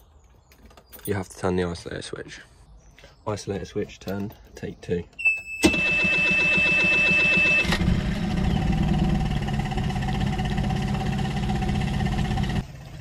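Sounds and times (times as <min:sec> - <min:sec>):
outboard motor starting and idling: 0:05.6 - 0:13.0.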